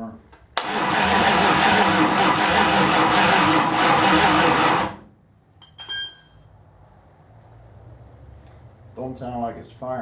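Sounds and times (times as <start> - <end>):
starter motor cranking: 0.6 - 5.0
metallic clink: 5.6 - 6.9.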